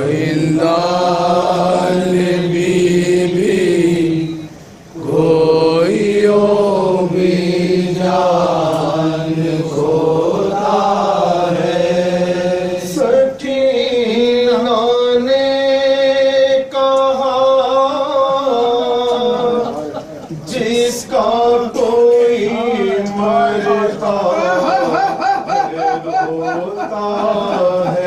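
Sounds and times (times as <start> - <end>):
men chanting a lament into microphone: 0.0 - 28.0.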